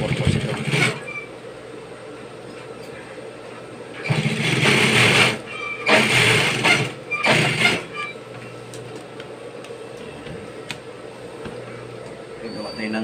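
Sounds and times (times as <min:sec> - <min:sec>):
sewing machine stitching: 0:00.0 - 0:01.2, 0:04.0 - 0:08.1
sewing machine hum: 0:00.0 - 0:01.3, 0:04.0 - 0:08.1.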